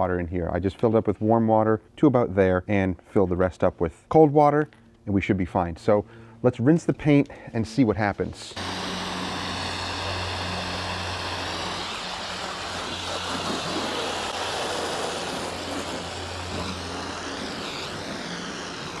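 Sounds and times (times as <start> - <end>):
steady low hum: 4.7 - 19.0
water spraying from hose: 8.6 - 19.0.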